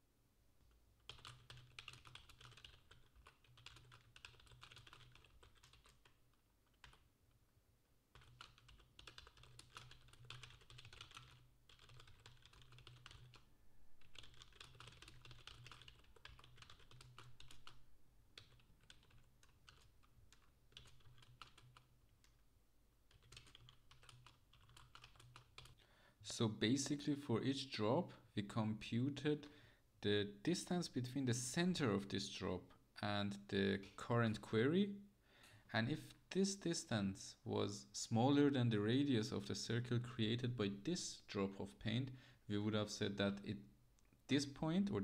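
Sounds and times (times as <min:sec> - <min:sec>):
typing on computer keyboard: 0:01.0 - 0:07.1, 0:08.1 - 0:17.8, 0:18.4 - 0:22.4, 0:23.1 - 0:25.8.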